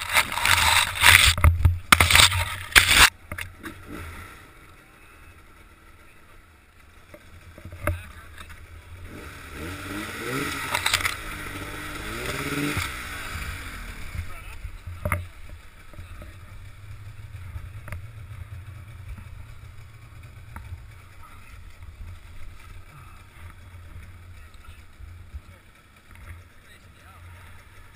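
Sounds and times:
branches scraping and crackling: 0:00.0 - 0:04.0, 0:10.2 - 0:14.1.

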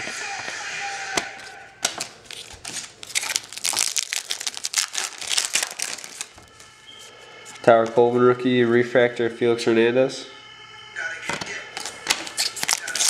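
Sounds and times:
foil wrapper crinkling: 0:01.4 - 0:06.5, 0:11.8 - 0:13.0.

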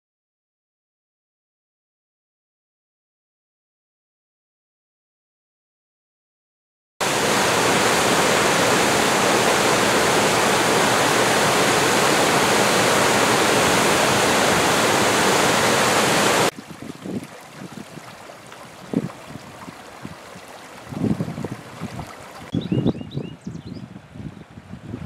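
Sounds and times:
water rushing over rock weir: 0:07.0 - 0:22.5
small creek trickling: 0:07.3 - 0:22.5.

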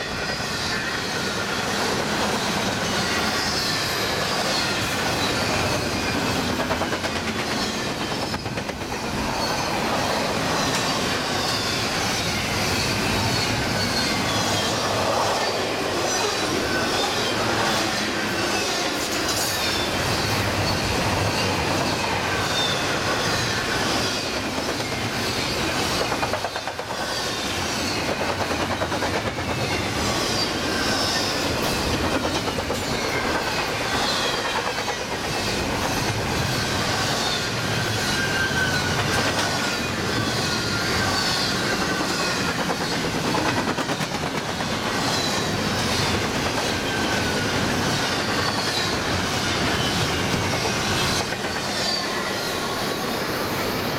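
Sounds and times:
high wheel squeals: 0:00.0 - 0:28.1, 0:29.4 - 0:31.9, 0:32.8 - 0:43.2, 0:44.9 - 0:53.9
train wheels rumbling on rails: 0:00.0 - 0:53.9.

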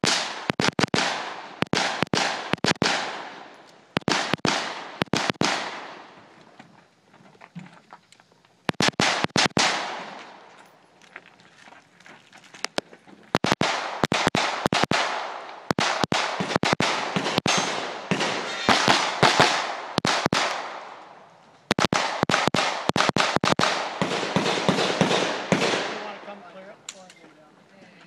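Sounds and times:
rapid gunfire with echo: 0:00.0 - 0:06.1, 0:08.7 - 0:10.2, 0:13.3 - 0:21.0, 0:21.7 - 0:26.4.

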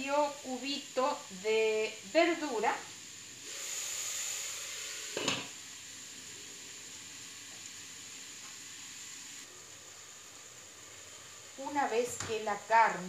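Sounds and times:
meat sizzling in a pot: 0:00.0 - 0:13.0.

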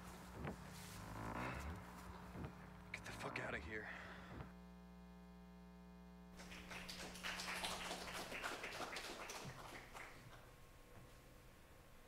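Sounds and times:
audience clapping: 0:06.4 - 0:10.5.

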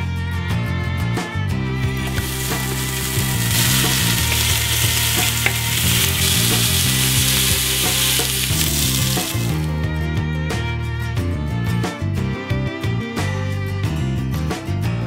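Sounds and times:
background music: 0:00.0 - 0:15.0
vegetables sizzling in oil: 0:01.9 - 0:09.7.

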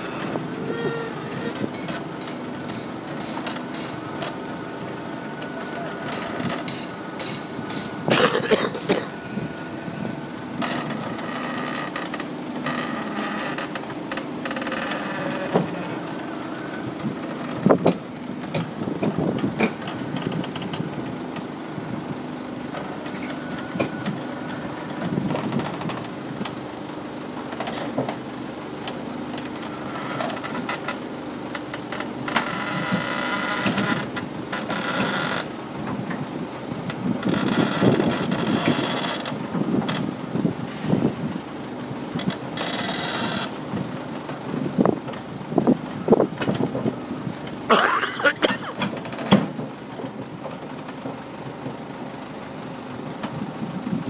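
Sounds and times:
squeals: 0:00.0 - 0:02.0, 0:37.3 - 0:39.3
steel tracks clanking on metal: 0:00.0 - 0:21.5, 0:47.7 - 0:51.9
diesel engine running: 0:00.0 - 0:54.0.

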